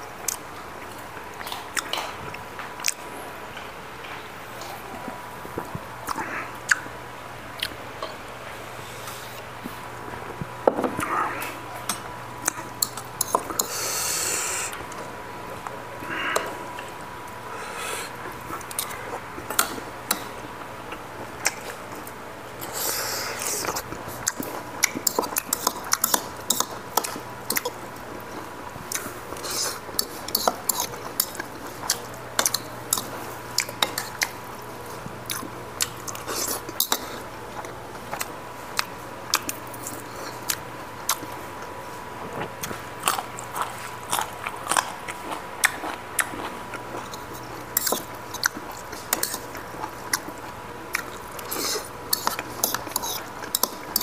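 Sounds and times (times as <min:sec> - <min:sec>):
man chewing and biting: 0:17.7 - 0:41.8, 0:42.4 - 0:54.0.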